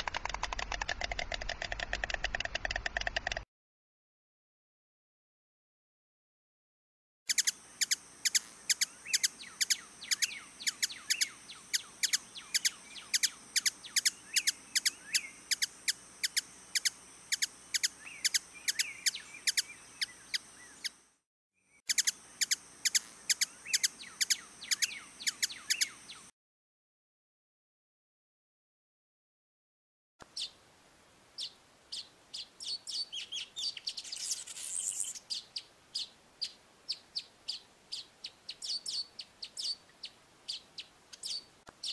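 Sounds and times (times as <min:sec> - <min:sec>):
hummingbird chirping: 0:07.3 - 0:21.1, 0:21.9 - 0:26.3, 0:31.4 - 0:41.9.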